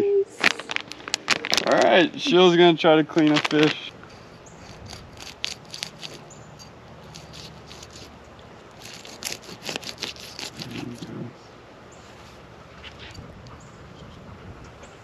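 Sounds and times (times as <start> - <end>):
knife sawing through fish scales: 4.0 - 8.2, 8.8 - 11.1.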